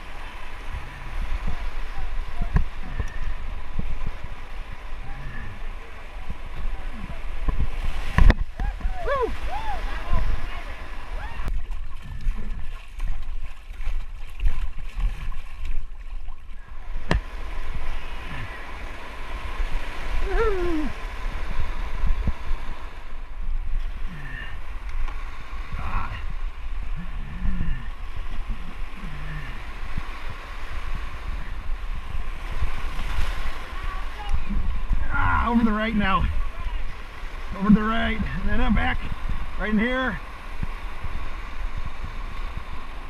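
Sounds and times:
paddler grunting: 0:20.1 - 0:21.0, 0:25.7 - 0:29.8, 0:34.1 - 0:36.1
whitewater rapids rushing: 0:32.7 - 0:40.4.

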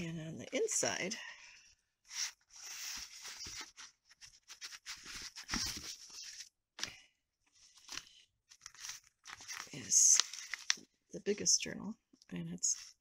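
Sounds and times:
paper rustling and sliding: 0:02.1 - 0:06.5, 0:07.6 - 0:10.8.

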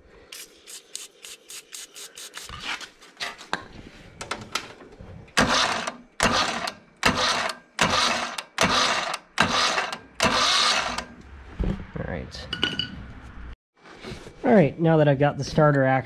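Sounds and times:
electric starter cranking engine: 0:05.4 - 0:11.2.

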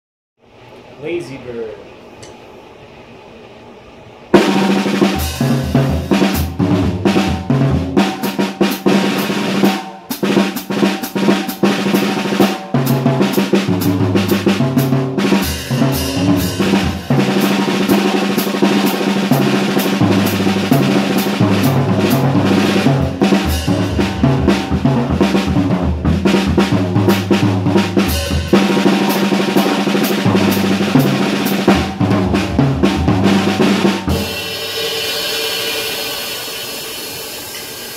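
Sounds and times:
jazz drum kit playing: 0:04.4 - 0:37.9
cymbals ringing: 0:34.0 - 0:37.9.

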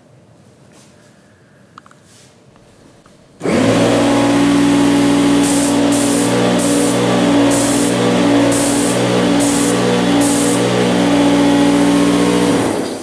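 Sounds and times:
vacuum cleaner motor hum: 0:03.4 - 0:13.0
high hiss: 0:05.3 - 0:13.0.

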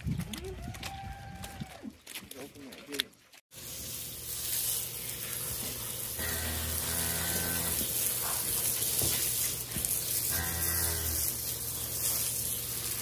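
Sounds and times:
hose spray hissing: 0:03.5 - 0:13.0.

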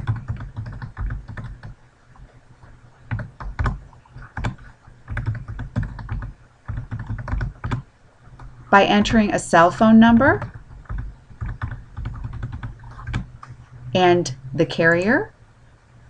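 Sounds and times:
typing on computer keyboard: 0:00.0 - 0:01.8, 0:03.1 - 0:07.8, 0:10.1 - 0:13.5.

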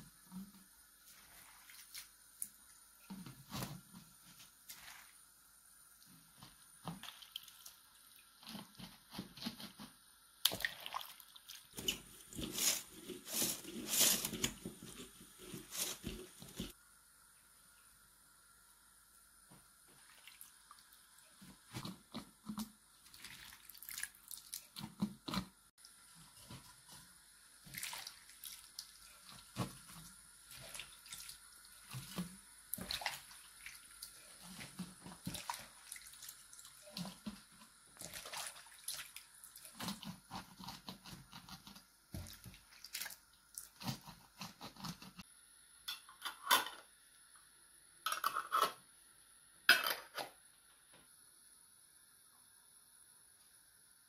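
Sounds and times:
wet squelching of hand mixing salad: 0:01.0 - 0:03.7, 0:21.8 - 0:24.9, 0:27.6 - 0:41.2.

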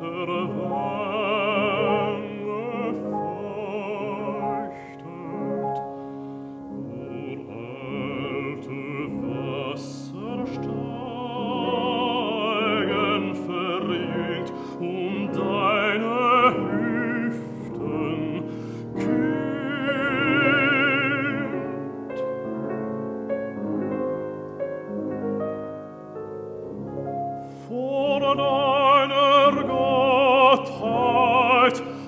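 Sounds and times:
man singing with vibrato: 0:00.0 - 0:22.2, 0:27.4 - 0:32.0
piano accompaniment: 0:00.0 - 0:32.0.

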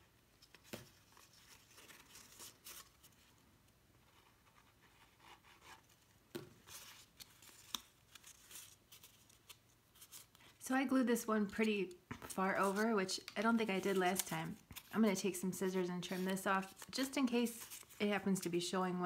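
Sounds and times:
paper rustling and scraping: 0:00.5 - 0:03.3, 0:11.6 - 0:13.0, 0:13.6 - 0:18.0.

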